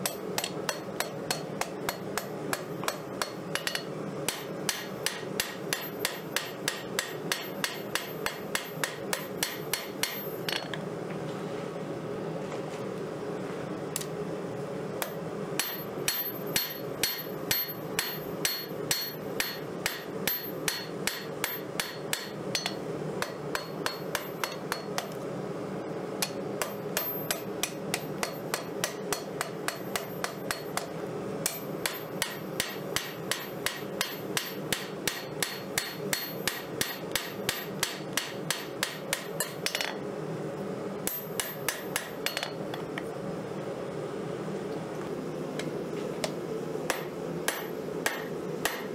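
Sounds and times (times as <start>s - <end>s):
hammer blows ringing on anvil: 0.0s - 10.7s, 15.0s - 25.2s, 26.2s - 40.0s, 41.1s - 42.6s, 46.9s - 48.9s.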